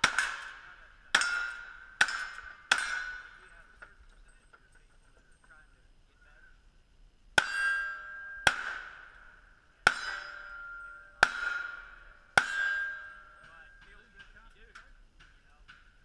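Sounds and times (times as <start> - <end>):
revolver gunshots: 0.0 - 3.6, 7.4 - 13.5
steel target plate ringing: 0.0 - 4.6, 7.4 - 14.4.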